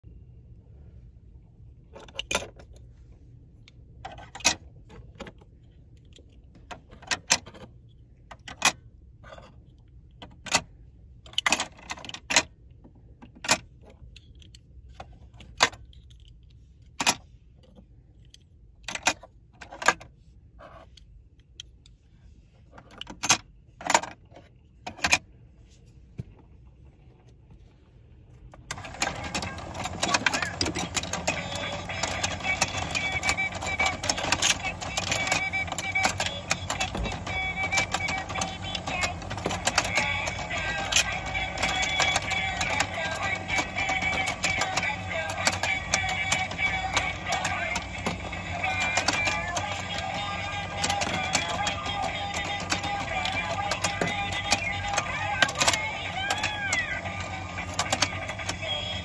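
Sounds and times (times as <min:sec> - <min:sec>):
toy turning mechanism: 0:28.6 - 0:59.0
plastic toy fish clicking: 0:28.7 - 0:59.0.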